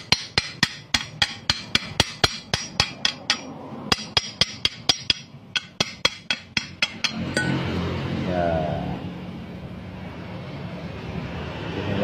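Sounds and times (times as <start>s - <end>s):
hammer striking steel pipe: 0.0s - 7.8s.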